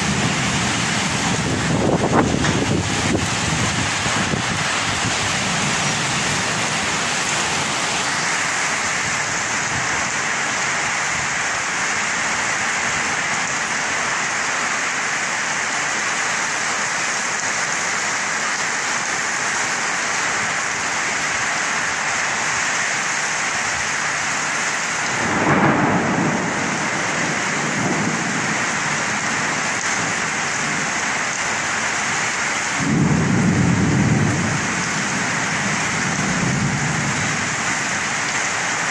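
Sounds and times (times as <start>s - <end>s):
low thunder rumbles: 0.0s - 11.7s, 25.1s - 31.4s, 32.7s - 38.2s
heavy rain pouring: 0.0s - 38.9s.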